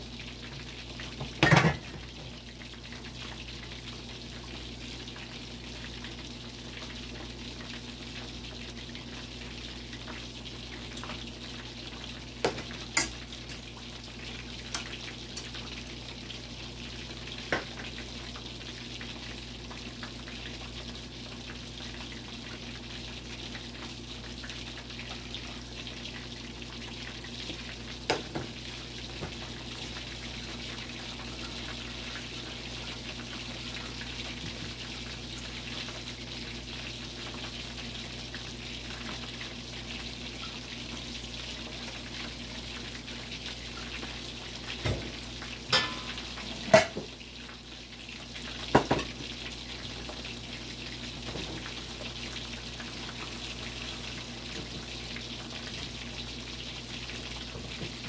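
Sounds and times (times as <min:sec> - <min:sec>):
chicken sizzling in hot oil: 0:00.0 - 0:58.0.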